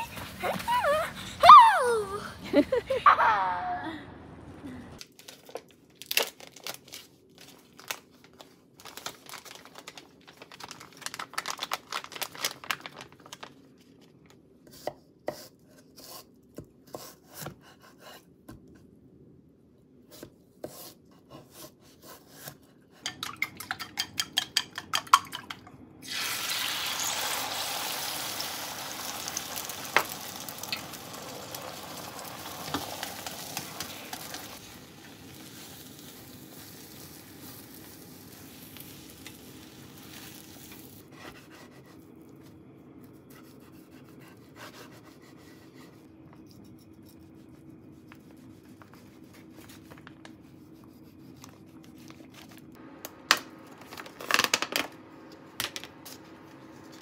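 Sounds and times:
egg sizzling in pan: 0:26.0 - 0:41.0.

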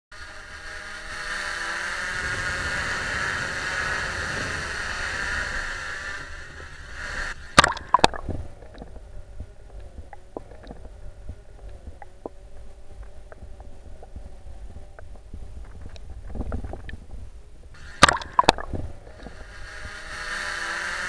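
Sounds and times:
drone propellers buzzing: 0:00.1 - 0:21.0
sharp splashes into water: 0:07.5 - 0:08.3, 0:18.0 - 0:18.8
faint underwater clicks: 0:07.6 - 0:17.2, 0:18.0 - 0:19.4.

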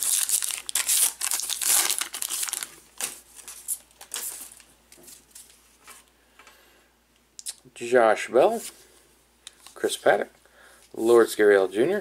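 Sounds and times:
foil wrapper crinkling: 0:00.0 - 0:04.7.

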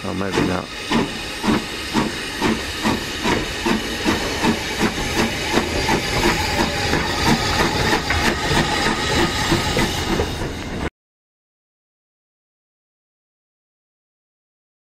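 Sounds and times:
continuous hiss of steam: 0:00.0 - 0:10.9
steam locomotive exhaust chuffing: 0:00.0 - 0:10.9.

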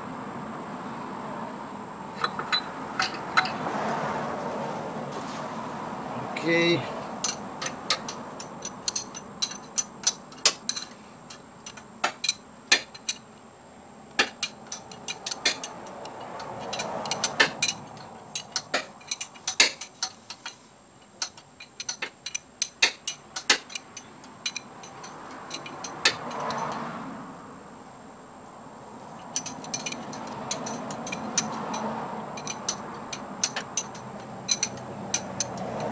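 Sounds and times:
hand ratchet clicking: 0:07.1 - 0:13.3, 0:14.1 - 0:26.8, 0:29.2 - 0:35.9.

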